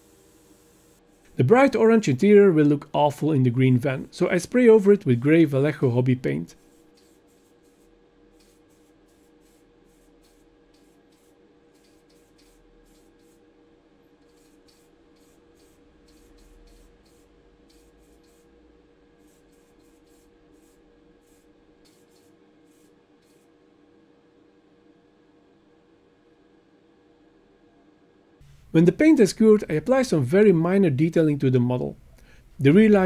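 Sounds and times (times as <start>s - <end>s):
aerosol spray can hisses: 0.0s - 1.4s, 6.6s - 13.5s, 14.2s - 18.6s, 19.2s - 23.5s
steady low hum: 0.0s - 33.0s.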